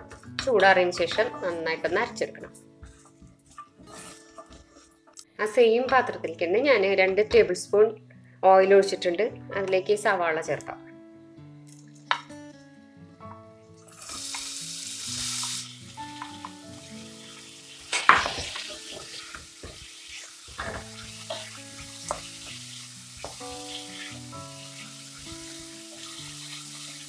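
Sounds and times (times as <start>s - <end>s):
soft background music: 0.0s - 27.0s
onions sizzling in hot oil: 13.8s - 27.0s.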